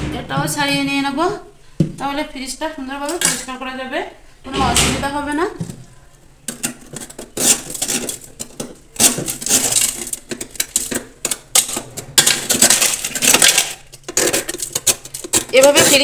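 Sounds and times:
ice scraped from freezer wall: 6.5 - 16.0.

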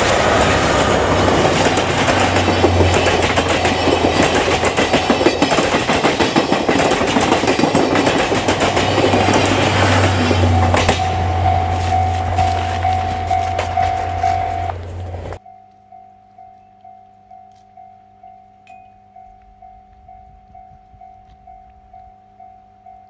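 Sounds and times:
train wheels clattering over rail joints: 0.0 - 15.4
level crossing warning bell: 0.0 - 23.0.

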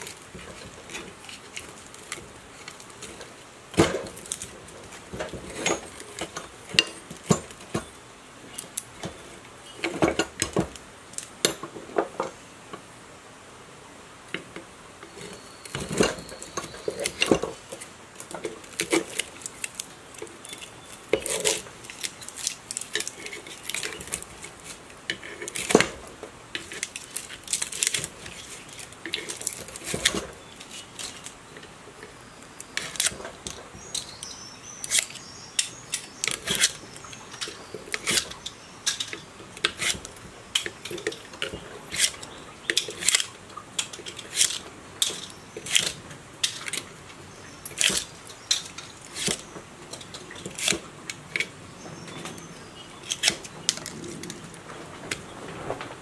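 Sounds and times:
metal tools clinking and scraping: 0.0 - 7.9, 15.1 - 32.2, 32.8 - 46.9.

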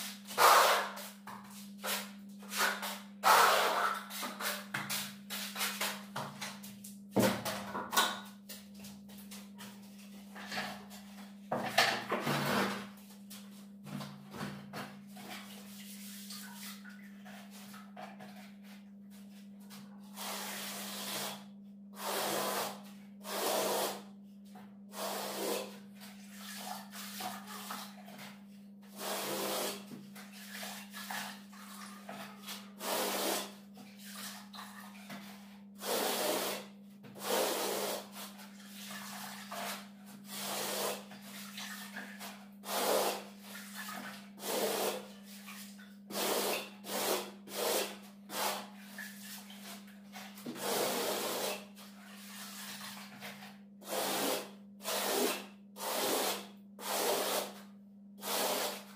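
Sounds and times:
plastering tool scraping wall: 0.0 - 6.2, 22.0 - 24.0, 24.9 - 58.9.

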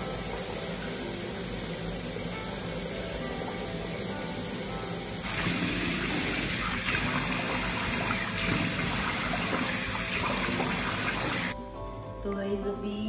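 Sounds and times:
tap water gushing into sink: 5.2 - 11.6.

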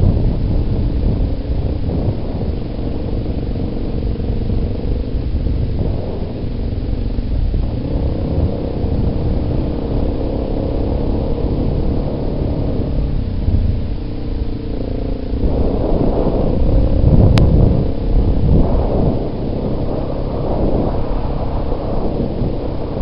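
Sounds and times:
atv engine running: 0.0 - 23.0
wind buffeting microphone: 0.0 - 23.0.

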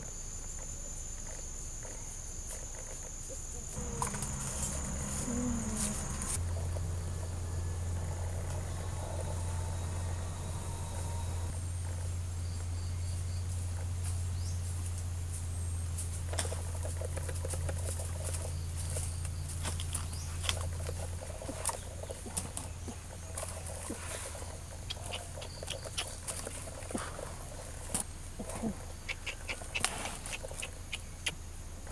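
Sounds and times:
high insect drone: 0.0 - 31.9
footsteps on dry leaf litter: 3.8 - 6.4
low hum: 3.8 - 16.9.

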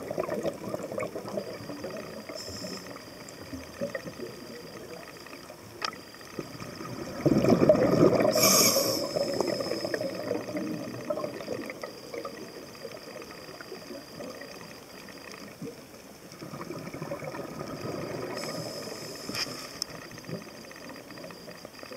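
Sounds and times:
underwater air bubbles burbling: 0.0 - 21.4.

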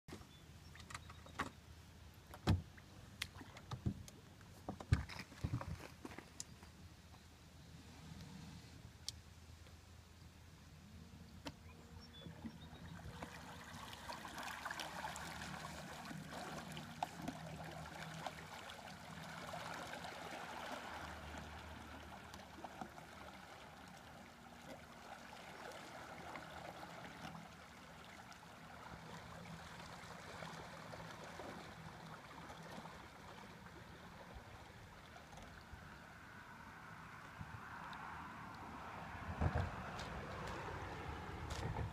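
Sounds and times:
small waves lapping on stones: 13.1 - 36.0.

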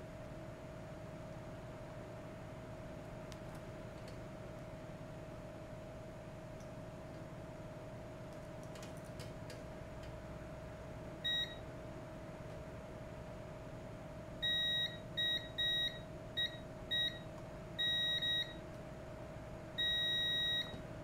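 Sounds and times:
multimeter short beeps: 11.3 - 11.6, 14.4 - 17.2, 17.8 - 18.6, 19.8 - 20.8.

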